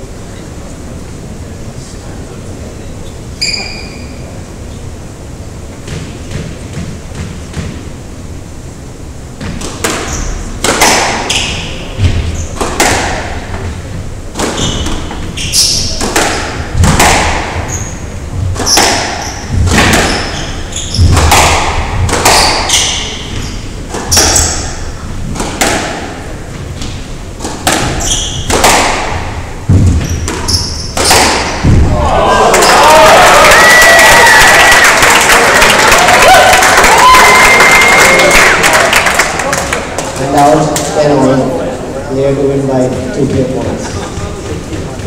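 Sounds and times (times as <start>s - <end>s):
squash ball hitting racquets and walls: 5.7s - 8.1s, 9.3s - 32.6s.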